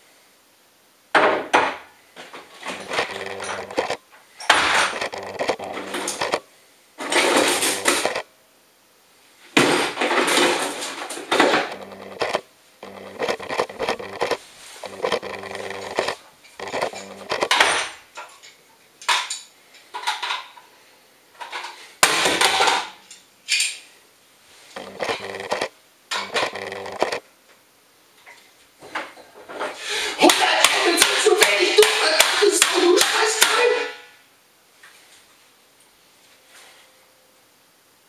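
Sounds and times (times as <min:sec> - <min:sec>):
tool against plastic case: 0:02.7 - 0:04.0, 0:04.8 - 0:06.4, 0:07.2 - 0:08.2, 0:11.5 - 0:17.8, 0:24.8 - 0:27.2.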